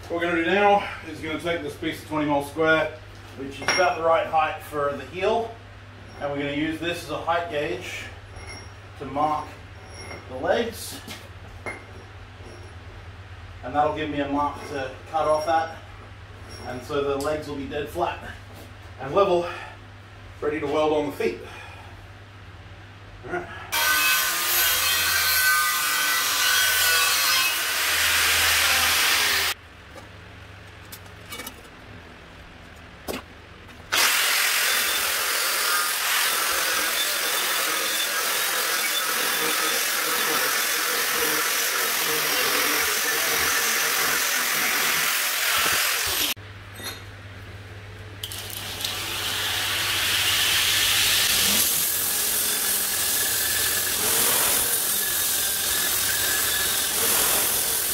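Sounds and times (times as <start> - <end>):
angle grinder cutting steel: 23.7 - 29.6, 33.9 - 46.4, 48.3 - 57.9
belt grinder grinding steel bar: 23.8 - 29.6, 33.9 - 46.4, 48.3 - 57.9.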